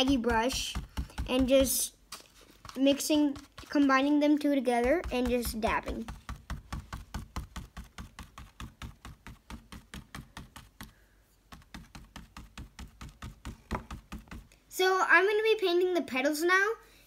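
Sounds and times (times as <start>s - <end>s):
paintbrush tapping on canvas: 0.0s - 1.8s, 4.7s - 14.5s.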